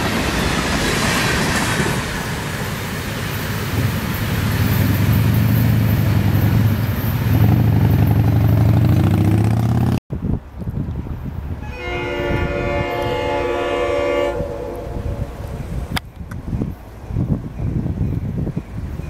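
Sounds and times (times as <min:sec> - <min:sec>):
freight train cars rumbling: 0:00.0 - 0:19.0
distant locomotive air horn: 0:11.6 - 0:15.9.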